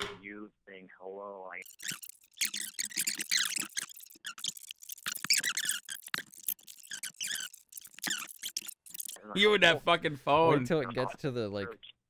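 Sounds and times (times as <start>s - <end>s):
plastic coating squeaking and scraping: 1.6s - 9.2s.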